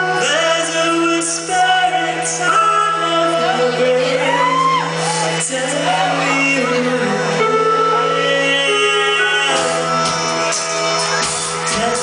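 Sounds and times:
live rock band: 0.0 - 12.0
person singing: 0.0 - 12.0
low held note: 9.4 - 11.9.

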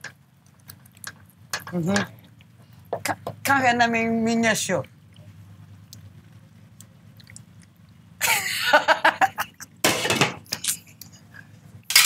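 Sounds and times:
low steady hum: 0.0 - 12.0
people laughing loudly: 8.2 - 9.6.

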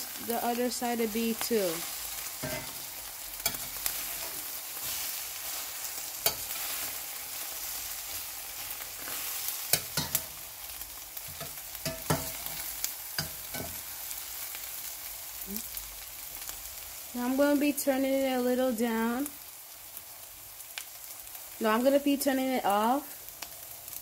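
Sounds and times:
eggs sizzling in a pan: 0.0 - 24.0
spatula clacking against pan: 6.2 - 6.6, 9.7 - 10.4, 11.3 - 12.6, 13.2 - 13.8.

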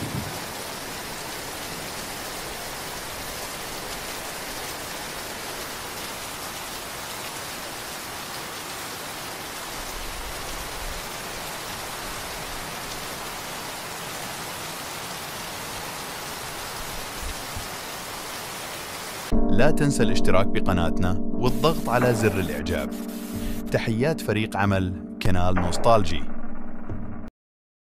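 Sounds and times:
steady rain falling: 0.0 - 19.3.

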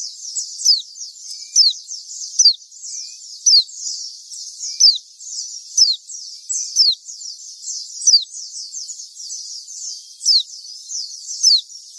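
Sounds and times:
birds chattering in high notes: 0.0 - 7.0.

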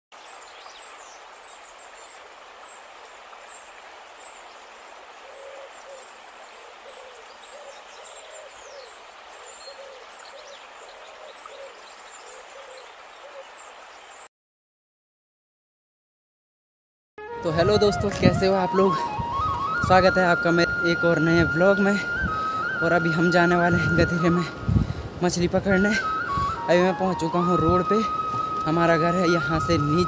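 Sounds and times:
stream rushing over rocks: 0.1 - 14.3, 18.0 - 30.0
bird hooting: 22.0 - 23.6, 26.0 - 27.1.

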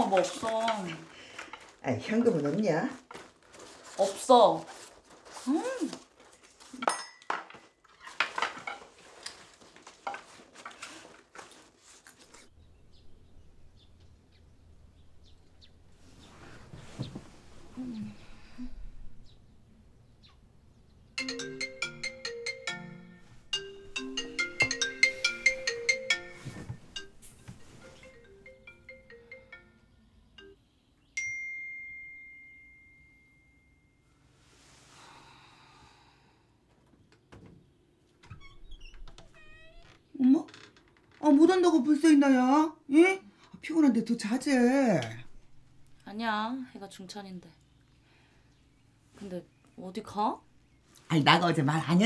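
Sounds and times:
marimba ringtone: 21.2 - 30.6.

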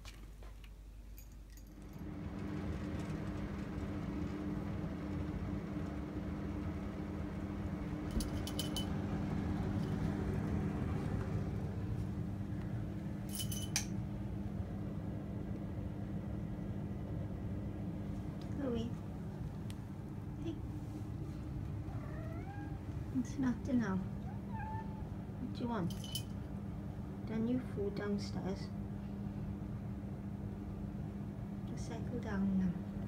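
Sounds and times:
steady low hum: 0.1 - 33.0
light clinking: 1.1 - 2.1, 8.0 - 9.1, 13.2 - 14.0, 25.8 - 26.4.

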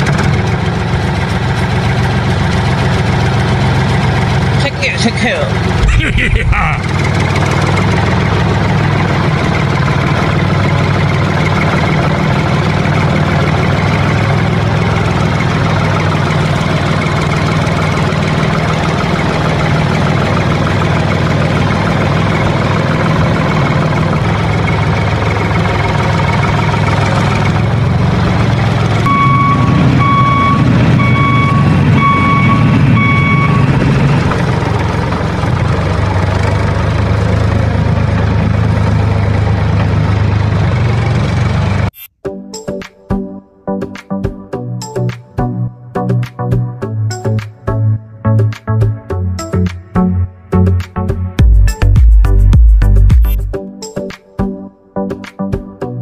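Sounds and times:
tractor engine idling: 0.0 - 41.8.

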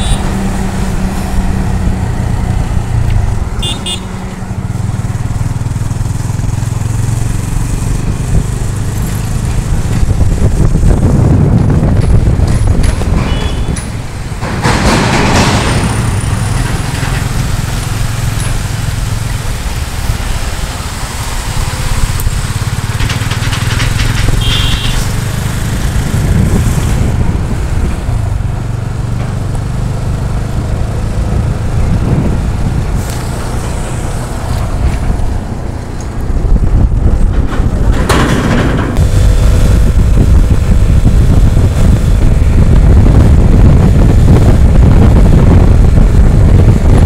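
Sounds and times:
heavy trucks passing: 0.0 - 47.0
wind and road noise: 0.0 - 47.0
motorcycle engine running: 1.6 - 13.6, 21.9 - 37.3, 39.0 - 47.0.

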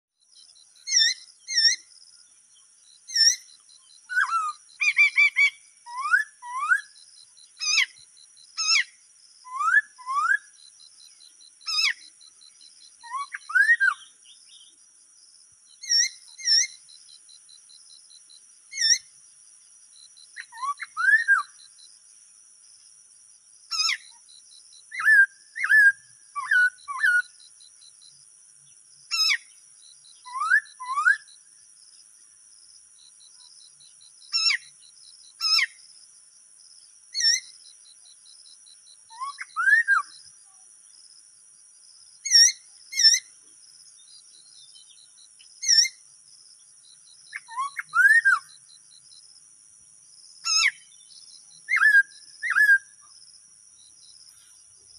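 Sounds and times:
high insect buzz: 0.2 - 54.9
bird whistling calls: 4.1 - 7.0, 8.6 - 10.5, 13.0 - 14.1, 20.4 - 21.6, 24.9 - 27.3, 29.1 - 29.5, 30.2 - 31.3, 34.3 - 34.7, 39.1 - 40.2, 42.3 - 43.3, 47.3 - 48.6, 50.4 - 50.9, 51.7 - 53.0.

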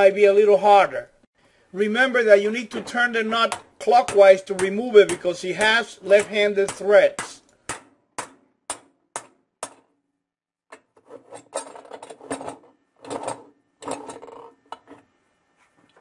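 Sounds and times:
wrench scraping and clinking: 11.0 - 15.0.

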